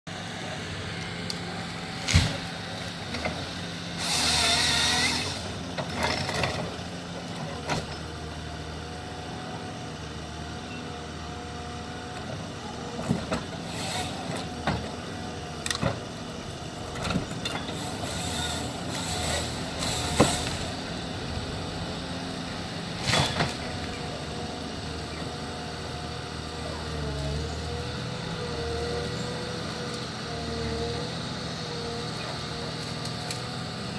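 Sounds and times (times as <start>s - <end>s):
diesel engine running: 0.1s - 33.9s
hydraulic whine: 0.9s - 8.1s, 12.8s - 33.9s.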